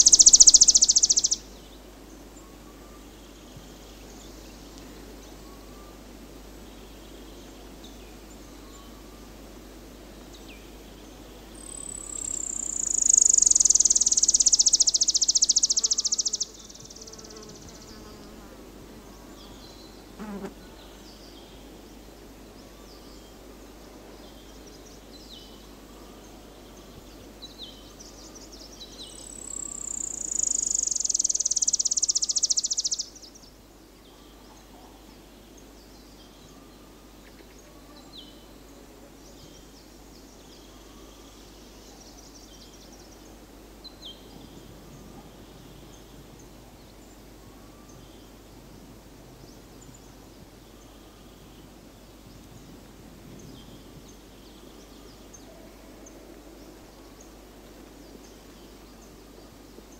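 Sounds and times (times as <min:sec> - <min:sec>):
faint small bird chirps: 0:00.0 - 0:01.4, 0:11.6 - 0:18.1, 0:27.6 - 0:33.4
high buzzing bird trills: 0:00.0 - 0:01.5, 0:11.6 - 0:18.3, 0:29.1 - 0:33.3.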